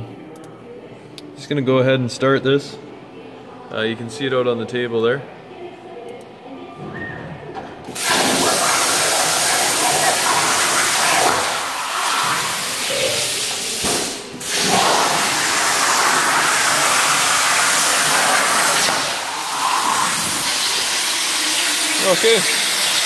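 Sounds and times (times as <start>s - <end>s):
plasma cutter arc hissing: 8.0s - 23.0s.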